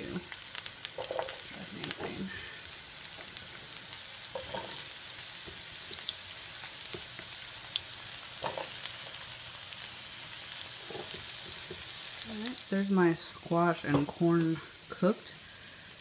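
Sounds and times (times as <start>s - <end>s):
food sizzling in a pan: 0.0s - 16.0s.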